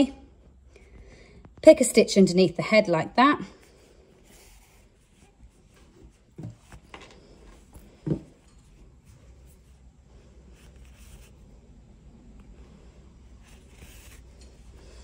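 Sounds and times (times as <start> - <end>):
yarn rustling: 13.4 - 15.0.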